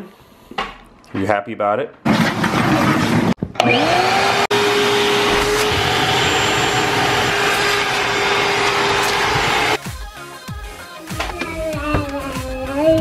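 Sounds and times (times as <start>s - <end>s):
vacuum cleaner whining: 2.4s - 9.8s.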